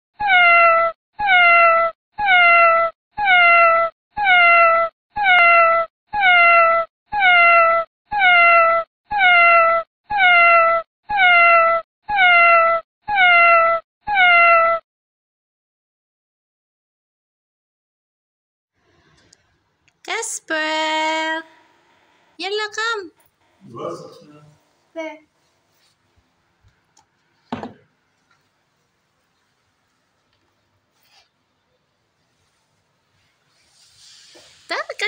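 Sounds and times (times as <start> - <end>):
cat meowing: 0.2 - 14.8.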